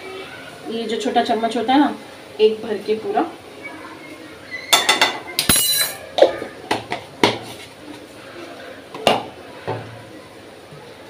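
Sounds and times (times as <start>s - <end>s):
metal spoon clinking against containers: 4.8s - 6.0s.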